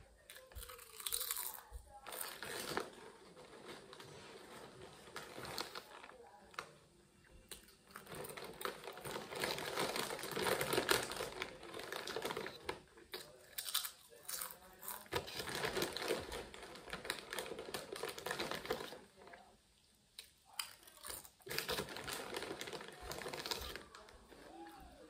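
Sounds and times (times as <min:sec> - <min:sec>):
chips crunching when chewed: 0:00.3 - 0:03.0, 0:07.5 - 0:19.0, 0:20.2 - 0:24.5
chip bag crinkling: 0:00.3 - 0:06.8, 0:07.5 - 0:19.2, 0:20.5 - 0:25.0.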